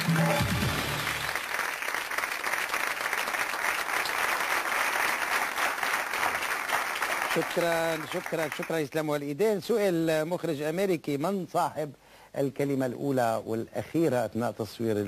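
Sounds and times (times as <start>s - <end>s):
show music sting: 0.0s - 1.4s
studio audience applauding: 0.0s - 9.0s.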